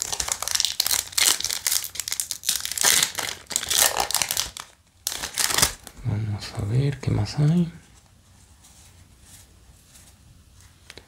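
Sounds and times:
foil wrapper crinkling and tearing: 0.0 - 5.9.

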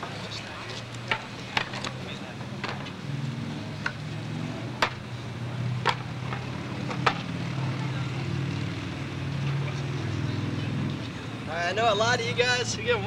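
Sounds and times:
vehicle engine idling: 0.0 - 13.0
sharp knocks: 4.8 - 5.0, 5.8 - 7.3.

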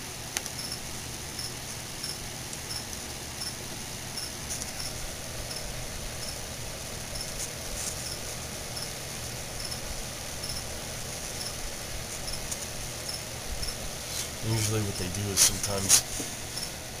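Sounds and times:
steady hiss: 0.0 - 17.0
substrate rustling and crackling: 7.2 - 8.5.

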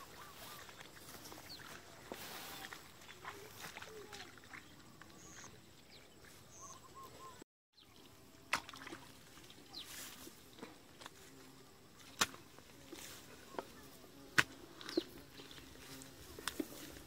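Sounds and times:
footsteps through wet grass: 0.0 - 7.3, 8.0 - 17.0
bird chirps: 4.6 - 8.0.

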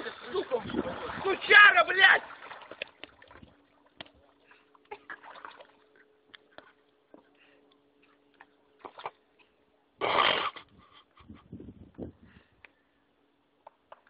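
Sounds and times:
water sloshing under footsteps: 0.0 - 9.5
faint steady hum: 0.0 - 14.0.

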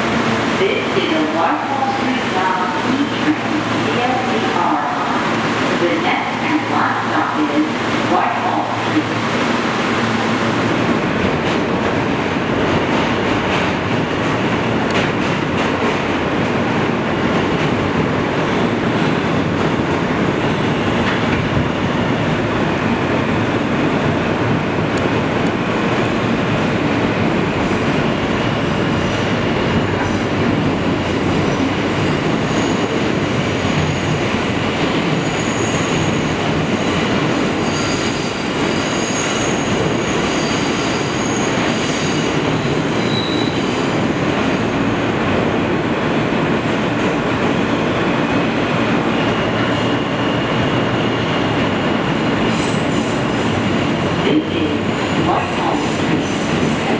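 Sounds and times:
subway wheels rolling on rails: 0.0 - 56.9
high-pitched wheel squeal: 40.3 - 43.6.

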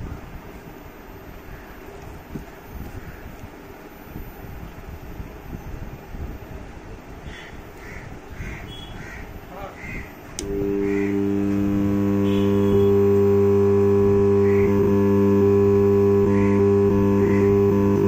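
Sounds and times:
crows cawing: 7.3 - 10.1
loud low speaker hum: 9.6 - 18.0
amplifier switch click: 10.4 - 17.9.

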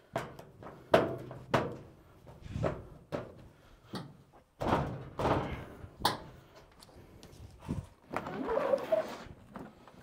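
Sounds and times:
metal sheet knocks and thuds: 4.6 - 5.8.

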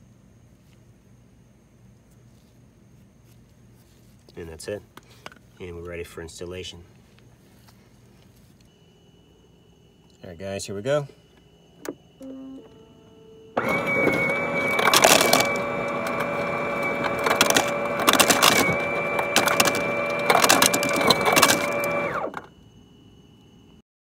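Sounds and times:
ice dispenser motor humming: 12.2 - 22.5
ice clattering into plastic cup: 13.6 - 22.1.

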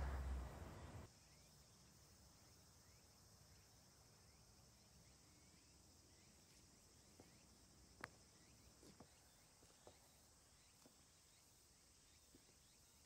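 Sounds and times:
insects chirring: 0.0 - 13.0
soft footsteps on paving: 6.4 - 11.2.

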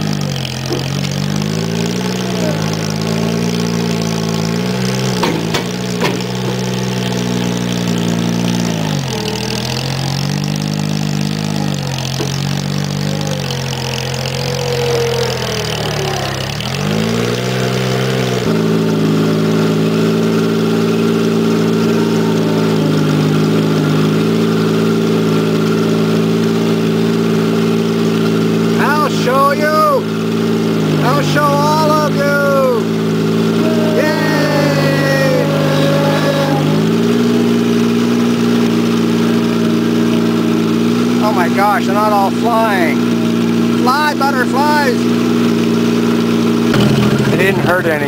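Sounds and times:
loader engine running under load: 0.0 - 48.0
sharp knocks: 5.2 - 6.6.

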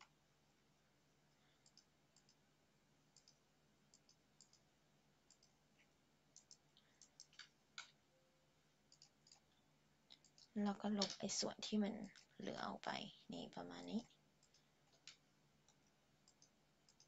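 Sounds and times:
computer mouse clicks: 1.3 - 2.4, 3.1 - 8.0, 8.9 - 11.4, 12.0 - 12.4, 14.4 - 17.0.

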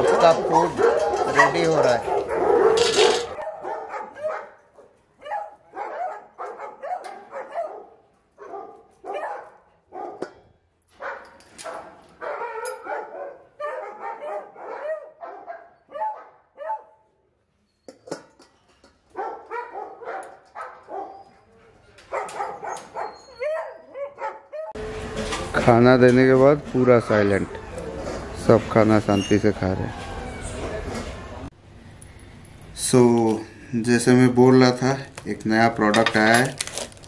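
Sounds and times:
dogs barking: 0.0 - 10.4, 11.0 - 17.0, 19.1 - 21.4, 22.0 - 24.8.

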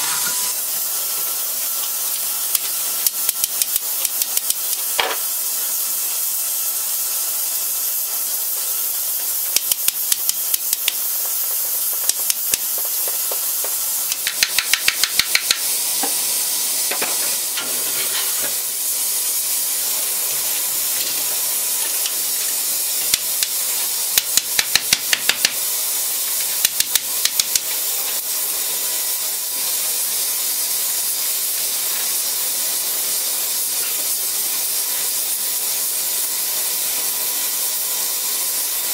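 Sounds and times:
water hissing to steam on hot iron: 0.0 - 38.9.

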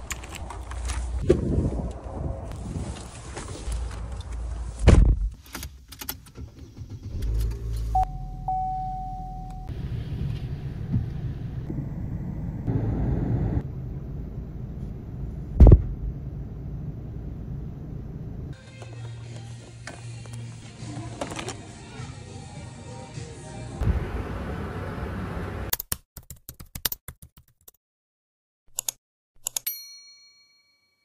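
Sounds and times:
car engine and road rumble: 0.0 - 21.9, 23.4 - 25.7
steady single-pitched tone: 8.0 - 9.7
loud thumps: 15.6 - 16.1.

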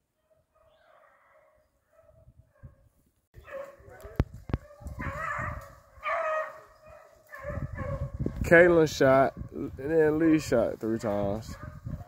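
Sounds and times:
beagles baying: 3.4 - 8.2.

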